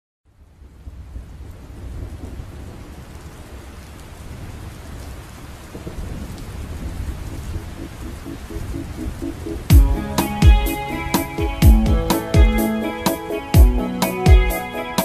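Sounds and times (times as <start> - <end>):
steady rain falling: 0.3 - 15.0
low rumble of thunder: 0.4 - 10.1.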